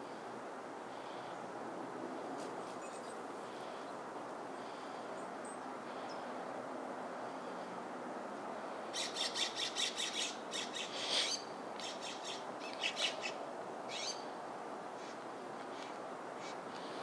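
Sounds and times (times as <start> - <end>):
steady background hiss: 0.0 - 17.0
robin chirping: 9.0 - 14.3.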